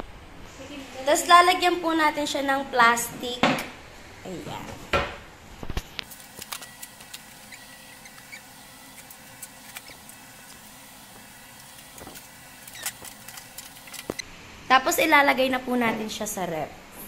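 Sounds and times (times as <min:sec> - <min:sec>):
plastic wrap crinkling: 0:05.6 - 0:14.2.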